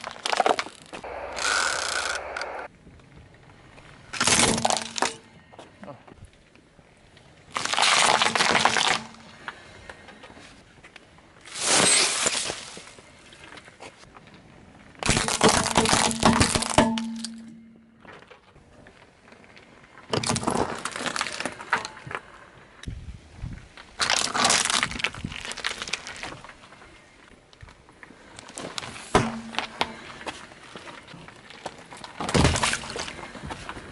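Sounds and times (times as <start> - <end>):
tyre crushing objects: 4.2 - 5.2, 28.6 - 30.4, 31.4 - 33.9.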